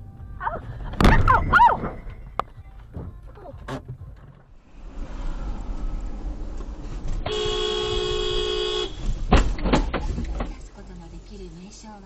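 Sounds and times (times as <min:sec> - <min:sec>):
low rumble of car cabin: 0:00.0 - 0:05.0
car horn: 0:07.2 - 0:09.2
loud sharp thump: 0:09.3 - 0:10.1.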